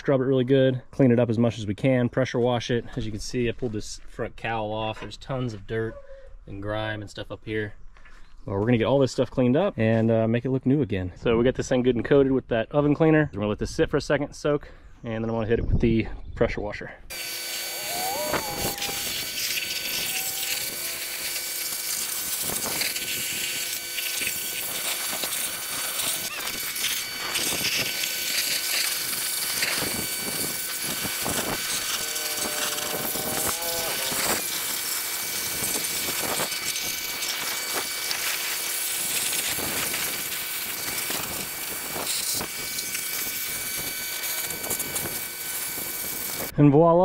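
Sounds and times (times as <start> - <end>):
pressure washer hum: 17.1 - 46.5
water jet hissing on sheet metal: 17.1 - 46.5.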